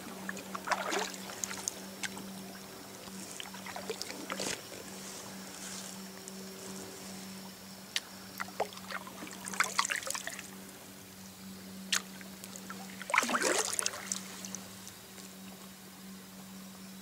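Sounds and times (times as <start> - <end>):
paddle splashing and dripping: 0.0 - 5.5, 8.0 - 10.5, 11.9 - 15.0
faint steady hum: 0.0 - 17.0.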